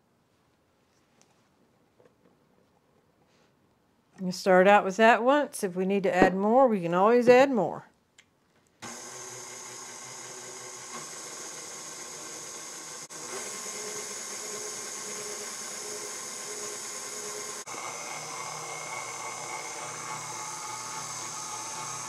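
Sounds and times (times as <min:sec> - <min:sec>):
stand mixer motor whine: 0:08.8 - 0:22.0.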